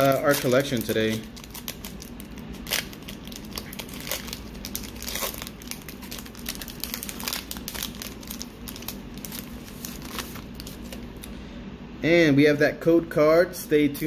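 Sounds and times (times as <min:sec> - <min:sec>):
foil wrapper crinkling and tearing: 0:00.0 - 0:11.1.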